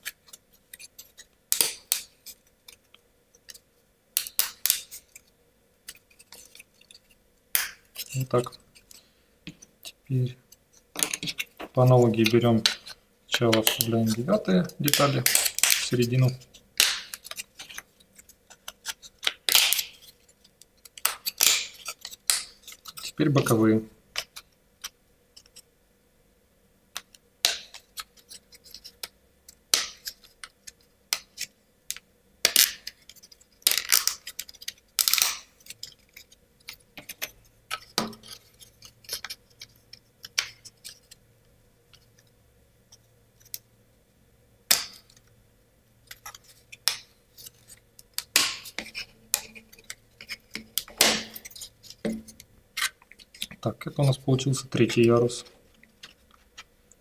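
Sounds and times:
wood clicking and knocking on wood: 48.1s - 52.5s.

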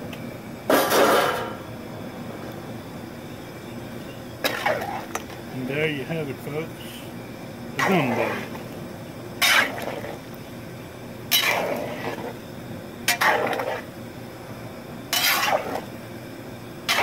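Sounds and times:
paddle stirring a pot: 4.4s - 5.4s, 9.4s - 10.3s, 11.3s - 12.4s, 13.1s - 13.9s, 15.1s - 15.9s.

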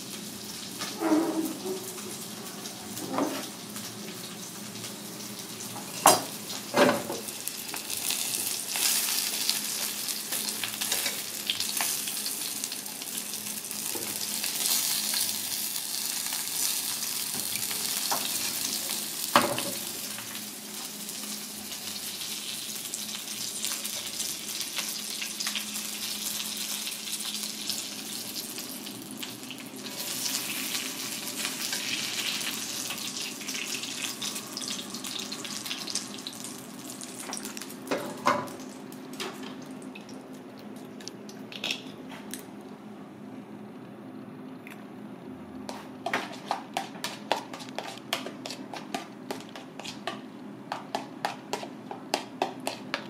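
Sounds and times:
fish sizzling in oil: 3.4s - 37.8s.

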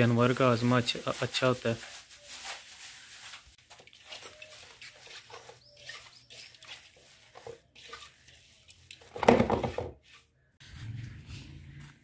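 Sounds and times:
hands squishing wet porridge: 0.0s - 9.1s.

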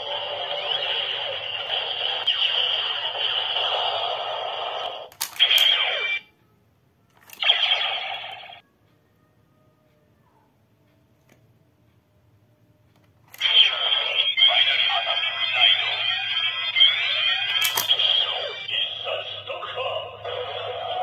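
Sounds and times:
toy speaker electronic music: 0.0s - 6.2s, 7.2s - 8.6s, 13.3s - 21.0s.

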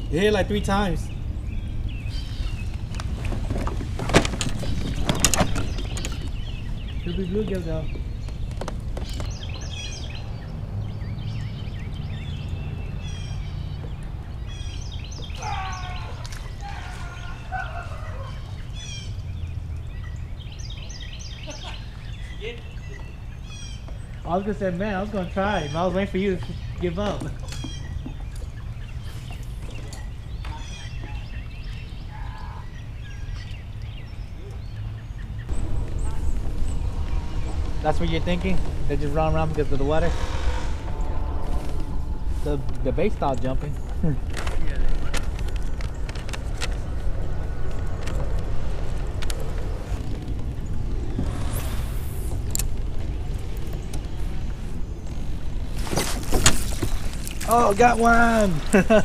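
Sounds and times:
birds chirping: 0.0s - 59.0s
steady low rumble: 32.8s - 59.0s.

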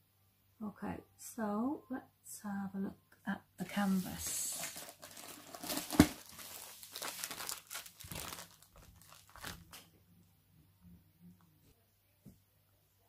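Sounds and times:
plastic sleeve crinkling: 3.8s - 9.9s.

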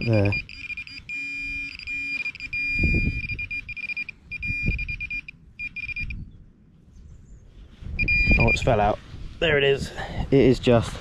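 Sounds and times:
pin-pointer buzzer tone: 0.0s - 6.2s, 8.0s - 8.6s.

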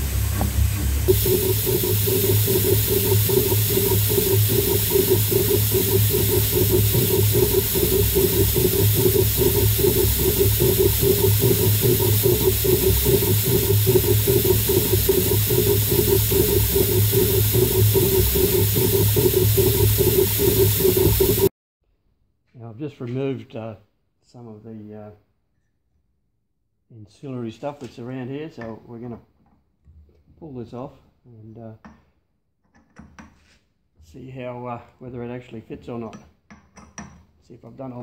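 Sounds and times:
coolant mist spray hiss: 0.0s - 21.5s
low machine hum: 0.0s - 21.5s.

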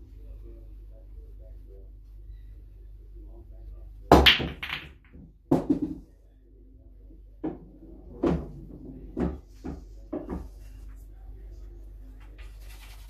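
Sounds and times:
pool balls clacking: 4.1s - 6.1s, 7.4s - 10.6s.

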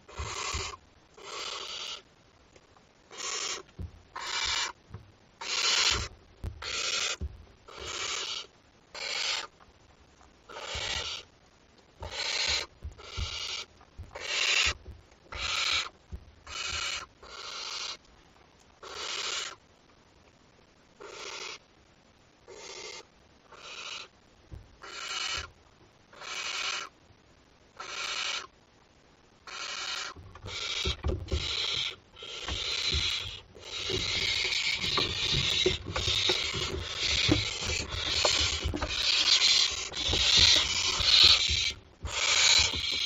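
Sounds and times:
young owl rasping hisses: 0.1s - 2.0s, 3.1s - 4.8s, 5.4s - 9.5s, 10.5s - 11.3s, 12.0s - 14.8s, 15.4s - 15.9s, 16.5s - 18.0s, 18.8s - 19.6s, 22.5s - 24.1s, 24.8s - 25.5s, 26.2s - 26.9s, 27.8s - 28.5s, 29.5s - 35.4s.

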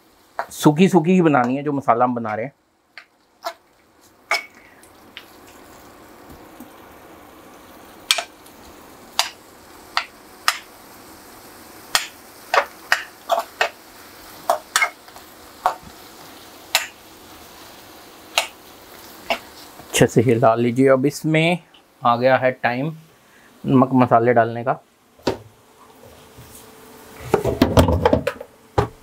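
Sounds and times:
onions and tomatoes sizzling: 0.0s - 29.0s
spoon clinking and scraping pan: 14.5s - 15.0s.

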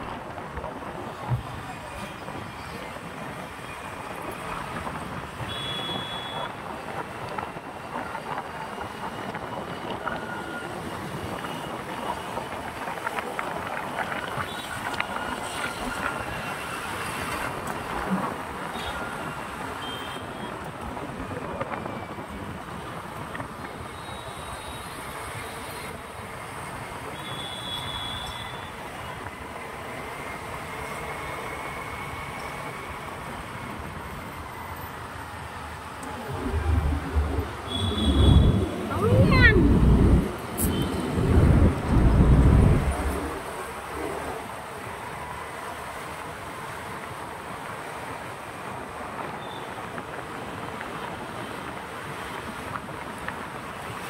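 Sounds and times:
highway traffic rush: 0.0s - 54.0s.

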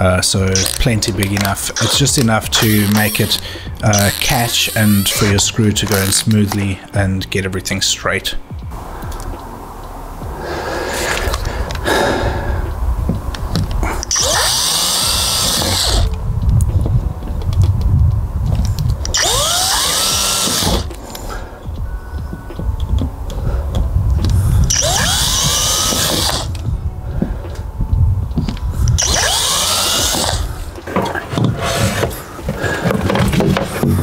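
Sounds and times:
cordless drill whining: 0.6s - 6.3s, 13.6s - 16.2s, 19.0s - 21.4s, 24.2s - 26.6s, 28.5s - 33.2s.

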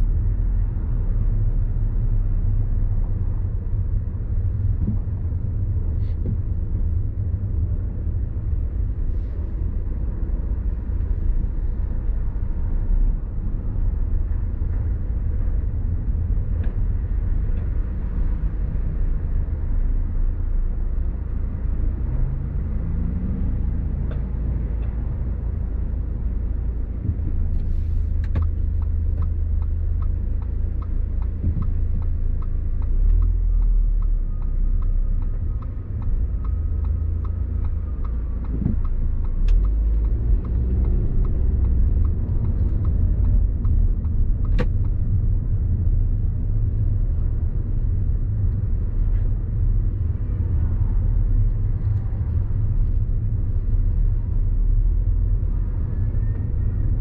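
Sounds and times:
car engine and tyre rumble: 0.0s - 57.0s
light regular ticks: 27.0s - 46.2s.

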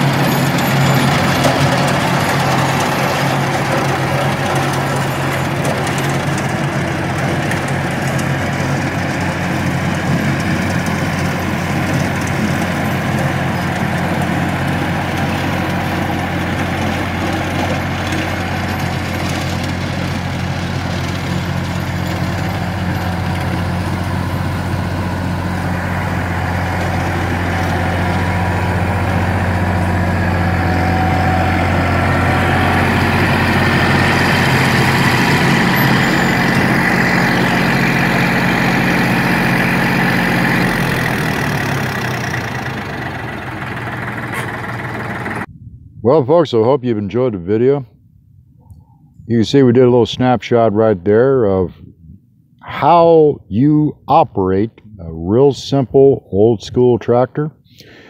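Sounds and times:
tractor diesel engine droning: 0.0s - 47.8s, 48.8s - 58.0s.

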